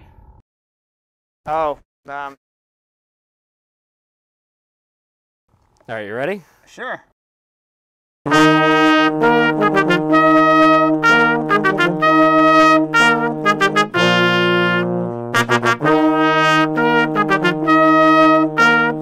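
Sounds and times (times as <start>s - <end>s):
brass trio playing: 8.3s - 19.0s.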